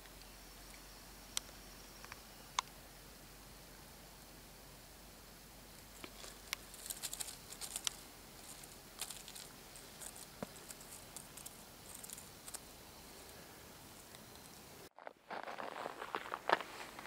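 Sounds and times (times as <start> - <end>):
crow pecking icy snow: 6.0 - 17.0.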